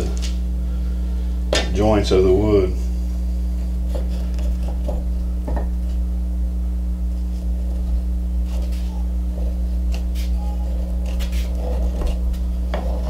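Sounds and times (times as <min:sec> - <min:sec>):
low electrical hum: 0:00.0 - 0:13.0.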